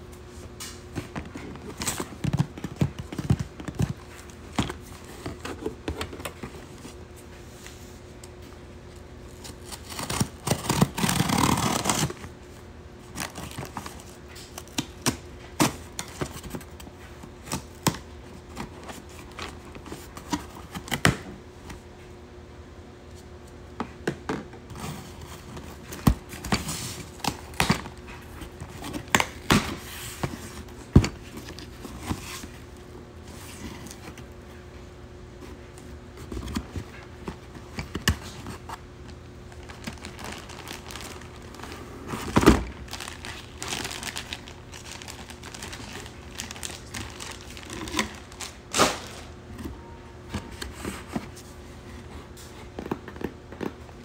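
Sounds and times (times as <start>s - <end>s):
packing tape tearing: 9.3s - 12.3s, 39.6s - 49.4s
plastic packaging crinkling: 39.5s - 49.3s.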